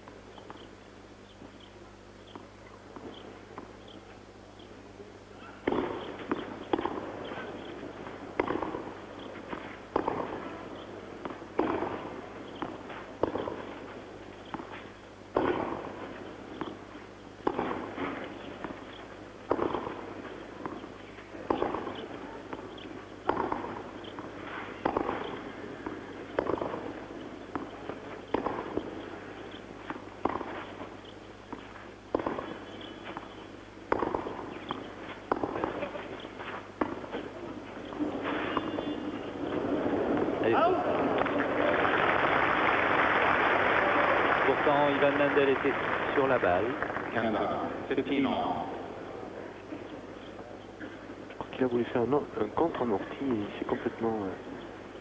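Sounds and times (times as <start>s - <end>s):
racket striking tennis ball: 5.6s - 40.4s.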